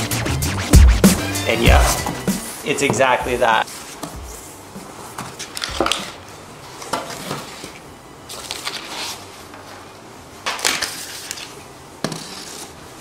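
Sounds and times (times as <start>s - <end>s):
cardboard sheets scraping and rustling: 3.6s - 5.5s, 6.7s - 9.5s, 10.8s - 13.0s.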